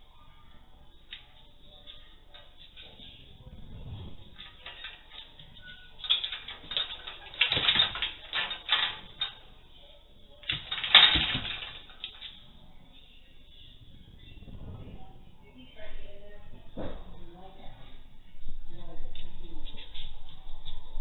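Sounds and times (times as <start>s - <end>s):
metal pet gate rattling: 4.2s - 9.6s, 10.4s - 12.5s.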